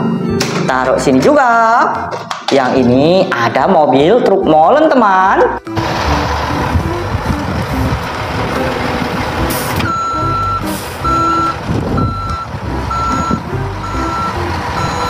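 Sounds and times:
recorded truck engine running: 0:05.6 - 0:15.0
reversing beep: 0:09.8 - 0:15.0.

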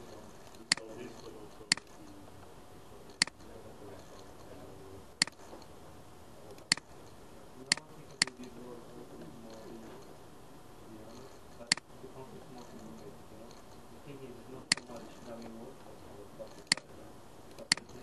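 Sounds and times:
computer mouse clicks: 0:00.4 - 0:01.0, 0:01.7 - 0:02.0, 0:03.1 - 0:03.4, 0:05.2 - 0:05.7, 0:06.5 - 0:07.0, 0:07.7 - 0:08.5, 0:11.1 - 0:11.9, 0:14.7 - 0:15.5, 0:16.5 - 0:16.9, 0:17.5 - 0:18.0.

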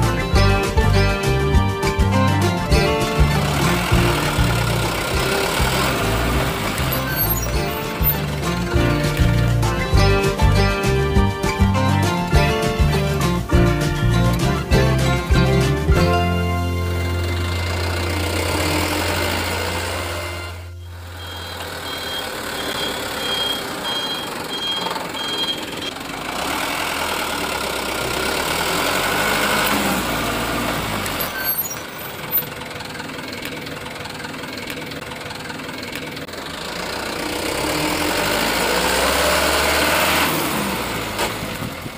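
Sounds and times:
truck engine running: 0:00.0 - 0:41.9
reversing beeps: 0:20.7 - 0:26.0.

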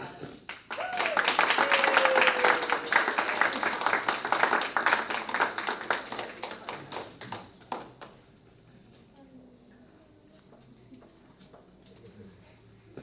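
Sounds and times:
audience applauding: 0:00.5 - 0:08.1.

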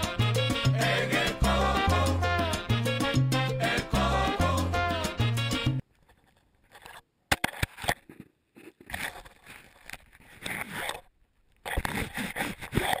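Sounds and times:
fingers rubbing on phone: 0:08.1 - 0:11.1, 0:11.7 - 0:13.0.

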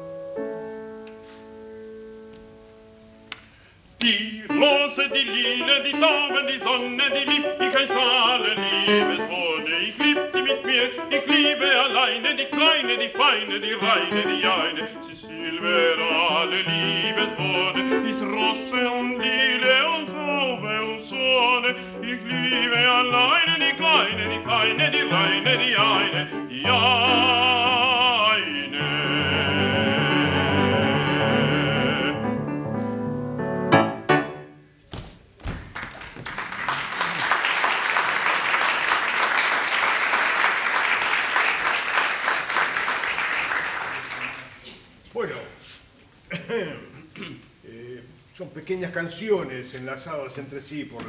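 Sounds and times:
grand piano: 0:00.0 - 0:34.8
man singing operatically: 0:04.0 - 0:32.4
audience applauding: 0:35.5 - 0:44.9.

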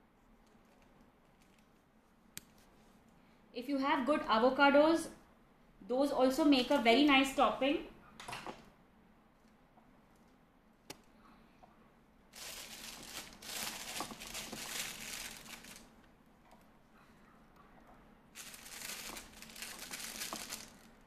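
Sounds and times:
plastic piping bag crinkling: 0:12.3 - 0:16.0, 0:18.4 - 0:21.0.

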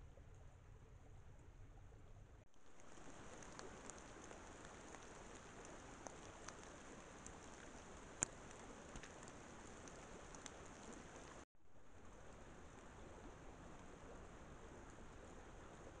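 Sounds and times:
light rain hiss: 0:00.1 - 0:16.0
raindrop ticks on leaf litter: 0:02.5 - 0:11.4.

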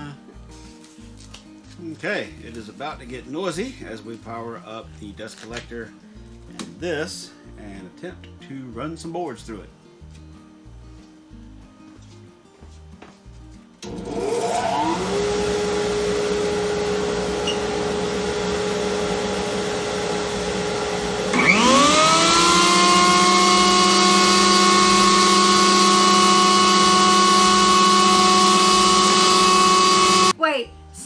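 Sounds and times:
dust collector humming: 0:13.8 - 0:30.3
jointer motor whine: 0:13.8 - 0:30.3.

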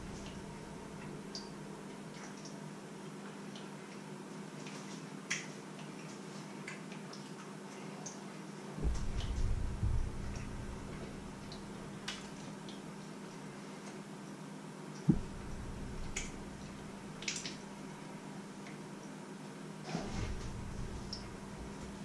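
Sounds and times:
low hum: 0:00.0 - 0:01.6, 0:08.8 - 0:12.5, 0:15.1 - 0:18.1, 0:20.0 - 0:22.0.

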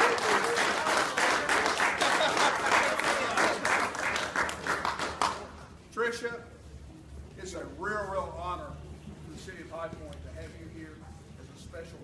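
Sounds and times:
crowd applauding: 0:00.0 - 0:05.6.

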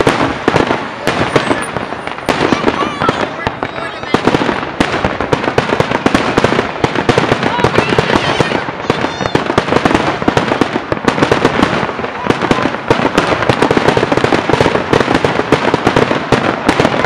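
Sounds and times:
fireworks bangs and crackles: 0:00.0 - 0:17.0
firework whistle: 0:01.1 - 0:04.2.

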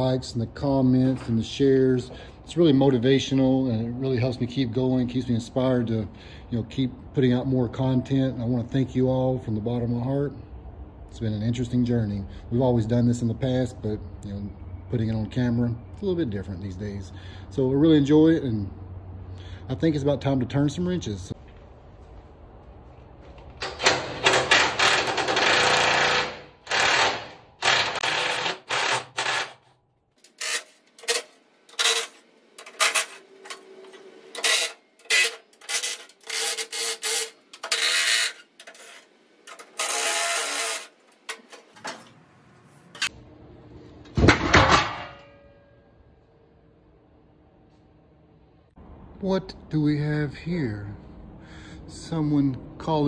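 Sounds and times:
cordless drill motor bursts: 0:24.5 - 0:29.6.

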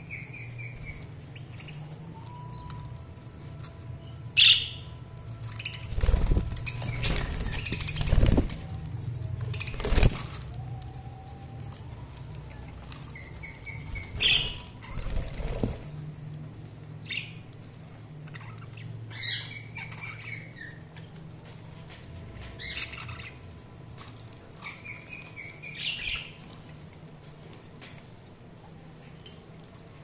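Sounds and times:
noisy rustling flurry: 0:05.1 - 0:16.7.

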